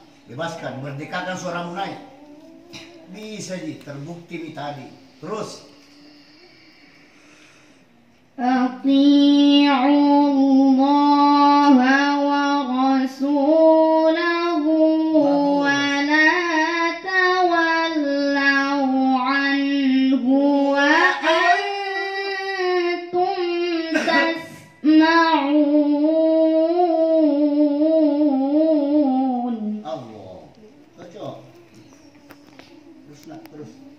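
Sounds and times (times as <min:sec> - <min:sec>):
woman chanting melodic recitation: 0:08.4 - 0:29.8.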